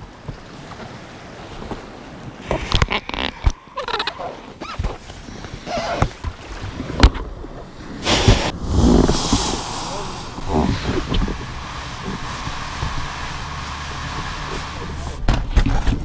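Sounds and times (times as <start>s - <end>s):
inflatable dinghy rubber squeaking: 2.4s - 6.6s
rush of noise: 7.7s - 15.3s.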